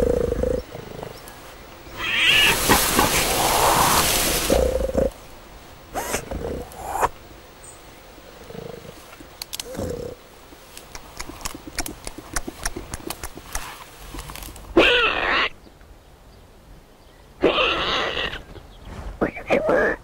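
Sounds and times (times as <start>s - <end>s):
wild boar grunting: 0.0s - 5.2s, 5.9s - 7.1s, 8.4s - 10.2s
rustling and clicking in grass: 0.0s - 5.3s, 8.4s - 14.8s.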